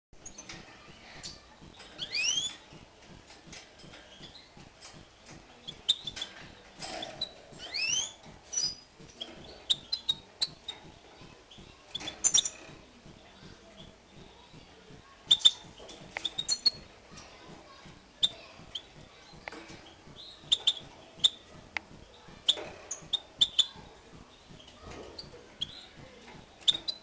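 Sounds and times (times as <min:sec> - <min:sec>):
finches chirping: 0:00.2 - 0:02.7, 0:04.0 - 0:14.4, 0:15.2 - 0:27.0
sharp clicks: 0:14.9 - 0:27.0.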